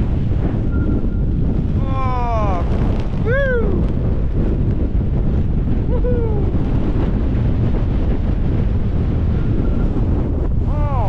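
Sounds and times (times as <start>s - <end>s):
wind buffeting microphone: 0.0s - 11.0s
vocal whoops: 3.2s - 3.8s.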